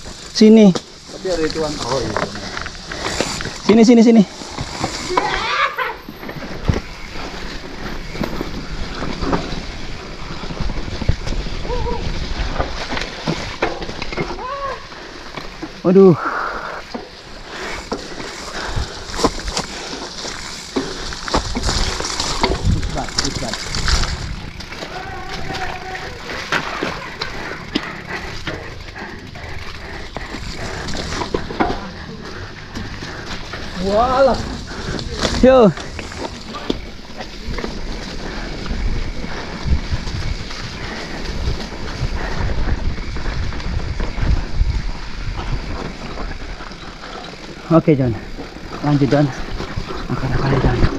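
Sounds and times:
bike rattling over rocks: 0.0 - 16.2, 16.8 - 50.9
steady rushing noise: 14.9 - 50.9
wind buffeting microphone: 17.8 - 50.9.

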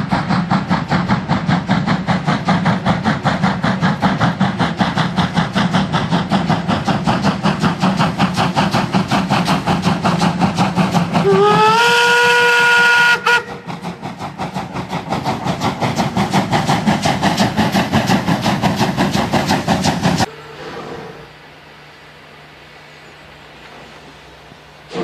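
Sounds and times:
steam locomotive exhaust chuffs: 0.0 - 25.0
steam whistle blast: 11.2 - 13.7, 20.3 - 21.4.

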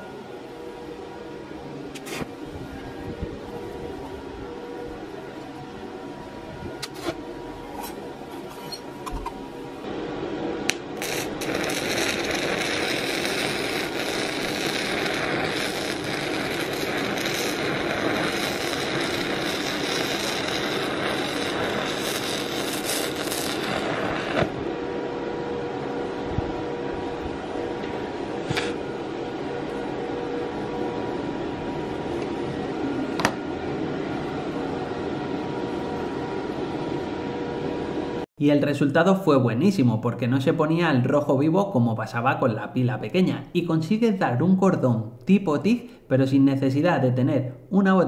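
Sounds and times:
welding arc crackling hiss: 10.7 - 24.6.

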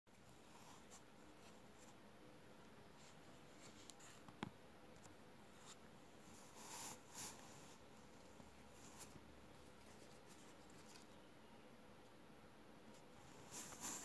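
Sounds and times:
handling ticks and rustles: 8.1 - 11.2.

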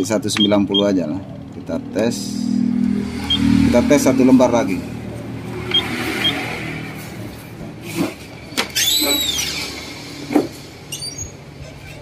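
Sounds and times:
control panel key beeps: 0.3 - 1.0
short squeak: 8.6 - 9.8, 10.9 - 12.0.

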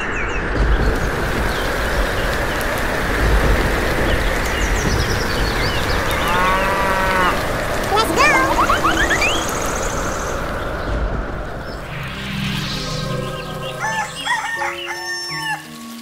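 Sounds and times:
birds chirping: 0.0 - 15.8
rain hissing: 0.4 - 16.0
cow mooing: 6.1 - 7.4.

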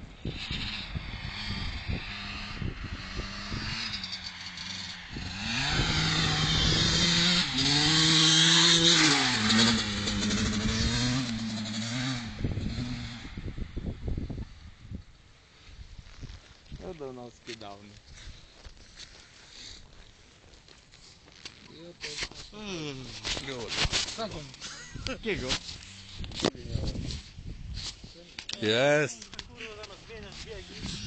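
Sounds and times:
faint wind: 0.0 - 31.0
motocross bike engine revving: 0.2 - 13.6.

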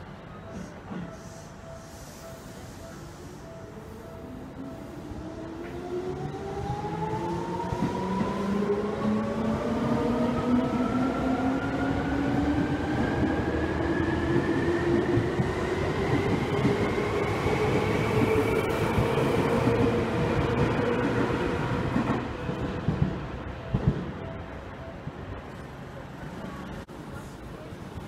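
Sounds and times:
train rumble: 0.0 - 28.0.

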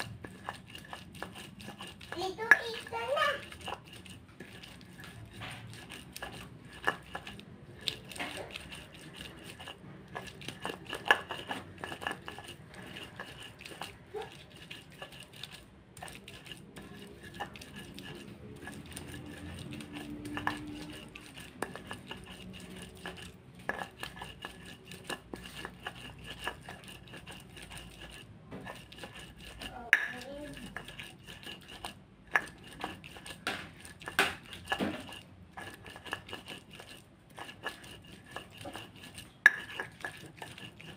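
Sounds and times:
stone pestle grinding on stone: 0.0 - 40.9
stone knocking on stone: 33.4 - 35.2.

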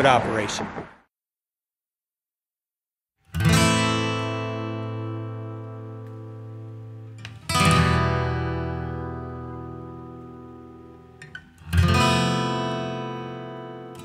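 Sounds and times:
acoustic guitar chords strummed: 3.3 - 14.0.

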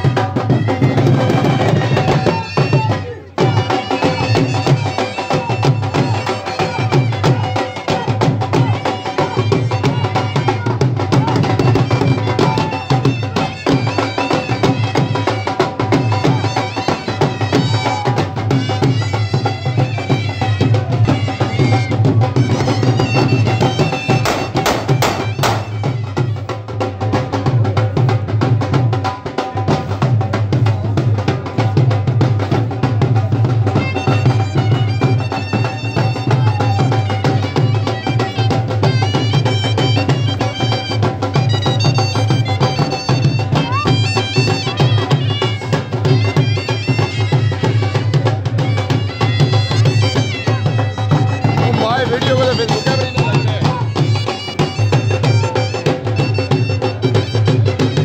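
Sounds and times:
folk melody: 0.0 - 29.7, 30.8 - 58.0
drums beaten with sticks: 0.0 - 58.0.

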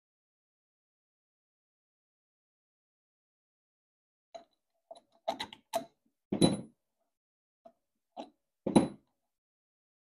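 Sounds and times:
metal bolts clicking and knocking: 4.4 - 6.7.

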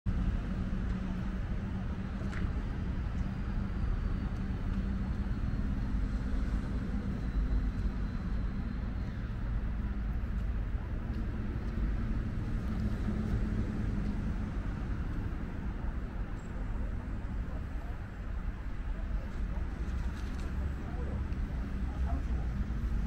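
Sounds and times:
faint constant hum: 0.1 - 23.0
low outdoor rumble: 0.1 - 23.0.

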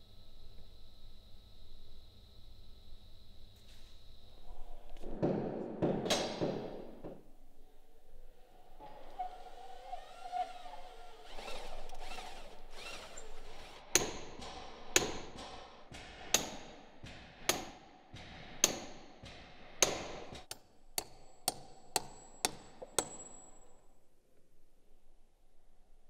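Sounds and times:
power drill running: 8.8 - 13.9
hammer striking iron bolt: 17.5 - 23.5.

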